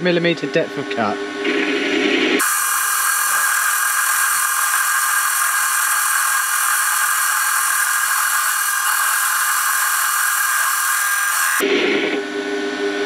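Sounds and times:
hiss of metal cutting: 2.4s - 11.6s
lathe motor and gears running: 2.4s - 12.8s.

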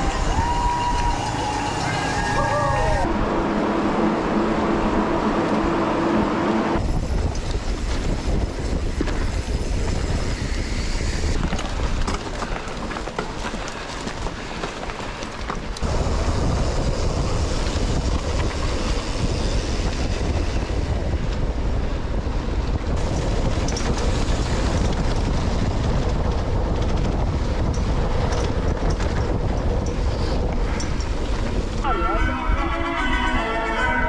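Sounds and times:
wind buffeting microphone: 0.0s - 34.0s
bike clicks and rattles: 6.8s - 31.8s.

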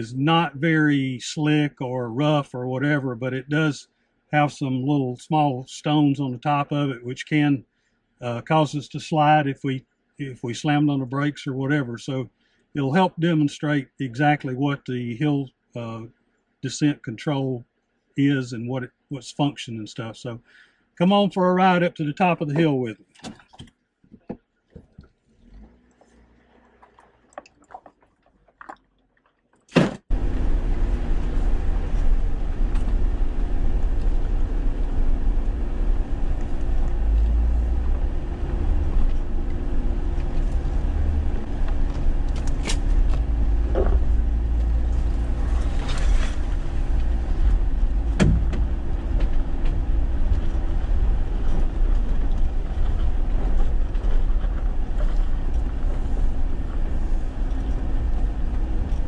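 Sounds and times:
engine and road rumble: 0.0s - 3.7s, 25.0s - 28.8s, 30.0s - 59.0s
knocks and rattles: 48.0s - 49.9s.

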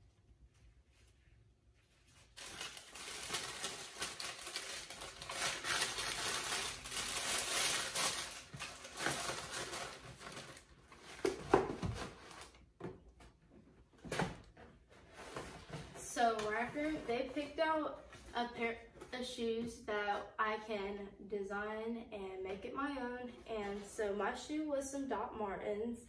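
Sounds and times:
tissue paper rustling: 1.8s - 12.6s.

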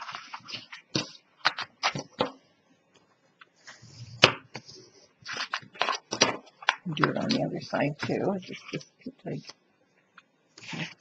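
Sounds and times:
paper rustling: 0.0s - 2.4s, 3.6s - 9.6s, 10.6s - 11.0s.

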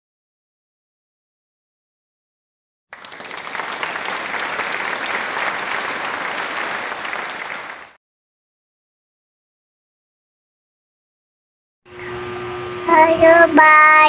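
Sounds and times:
dense clapping: 2.9s - 8.0s.

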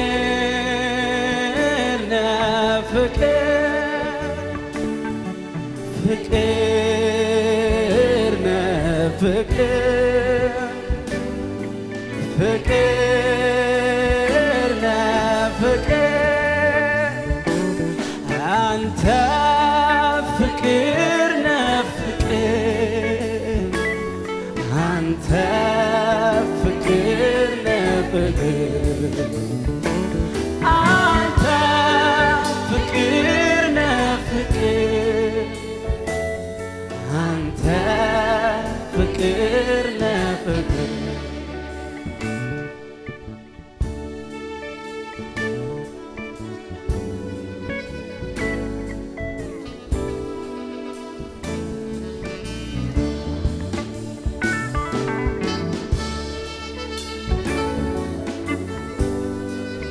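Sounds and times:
man singing with vibrato: 0.0s - 42.2s
live band accompaniment: 0.0s - 59.9s.

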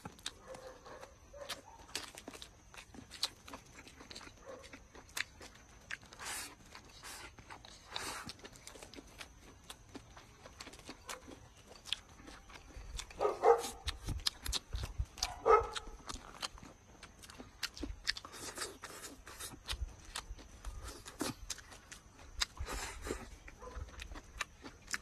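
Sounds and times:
chewing and crunching: 0.0s - 25.0s
dog barking: 0.4s - 2.0s, 4.4s - 4.8s, 13.2s - 14.0s, 15.2s - 16.0s, 23.6s - 23.9s.

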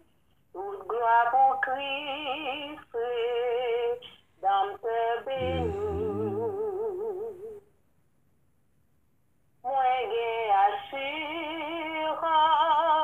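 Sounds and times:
low accompanying tones: 5.4s - 6.9s
person singing with vibrato: 5.4s - 7.2s.

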